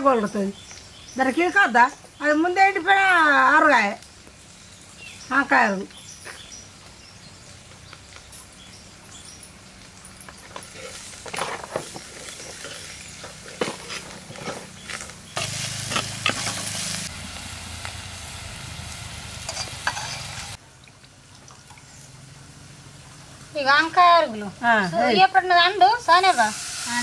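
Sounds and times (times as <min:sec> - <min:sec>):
food frying in hot oil: 0:00.1 - 0:27.0
ladle scraping and knocking pan: 0:10.4 - 0:16.8, 0:19.4 - 0:20.6.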